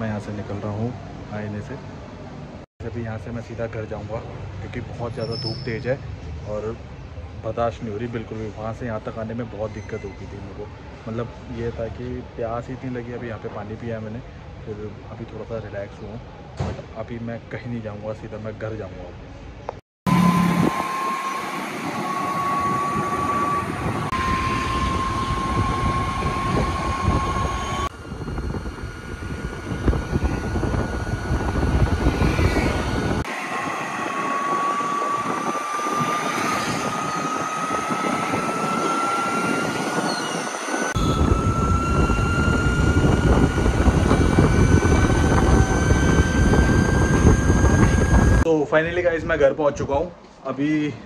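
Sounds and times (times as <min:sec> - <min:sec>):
wind and road noise: 0:19.1 - 0:48.5
electric scooter motor whine: 0:20.1 - 0:48.5.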